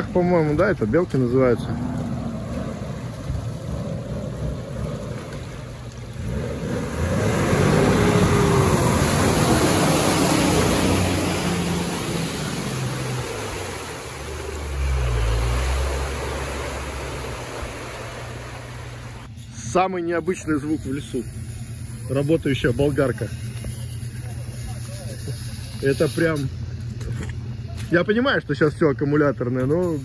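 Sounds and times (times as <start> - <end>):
off-road vehicle engine: 0.0 - 30.0
broad rushing noise: 1.4 - 19.3.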